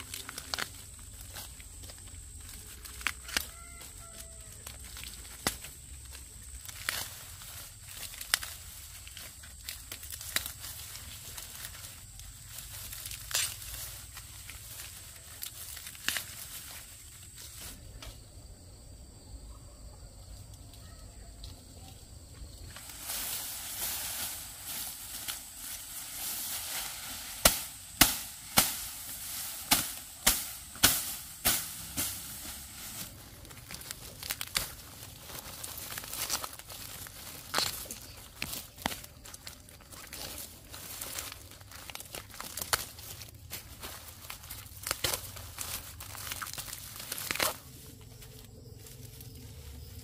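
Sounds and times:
steady hiss: 22.6 - 33.2
sharp strikes: 27.2 - 32.6.

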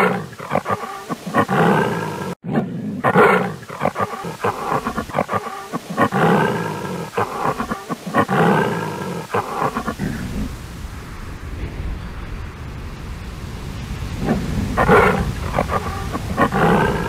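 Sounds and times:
lion roaring: 0.0 - 10.5, 14.2 - 17.0.

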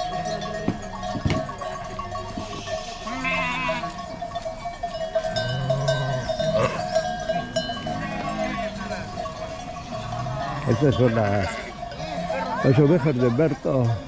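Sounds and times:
sheep bleating: 2.4 - 4.0, 5.3 - 9.1, 10.0 - 12.8.

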